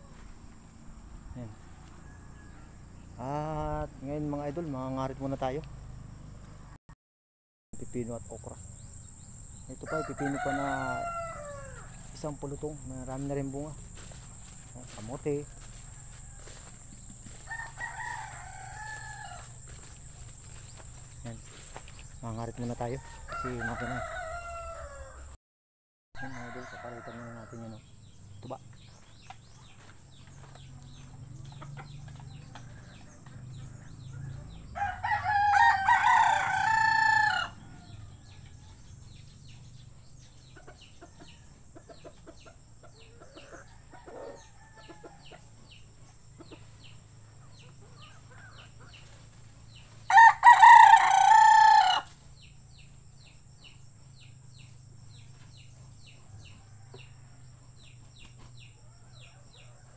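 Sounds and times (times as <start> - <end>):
rooster crowing: 1.6 - 3.3, 9.8 - 20.8, 22.5 - 25.4, 26.2 - 27.8, 30.4 - 38.8, 43.2 - 45.4, 50.0 - 52.2.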